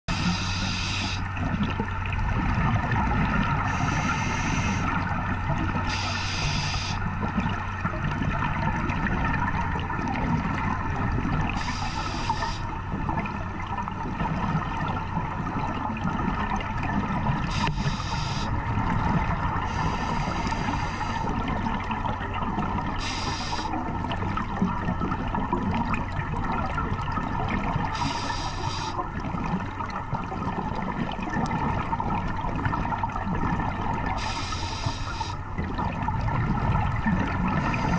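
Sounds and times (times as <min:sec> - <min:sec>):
regulator breathing hiss: 0:00.1 - 0:01.2, 0:03.7 - 0:04.9, 0:05.9 - 0:07.0, 0:11.6 - 0:12.7, 0:17.5 - 0:18.5, 0:19.7 - 0:21.3, 0:23.0 - 0:23.8, 0:28.0 - 0:29.0, 0:34.2 - 0:35.4, 0:37.6 - 0:37.9
muffled underwater noise: 0:00.1 - 0:01.6, 0:02.4 - 0:07.9, 0:10.2 - 0:13.3, 0:15.8 - 0:24.7, 0:27.6 - 0:31.8, 0:33.5 - 0:37.9.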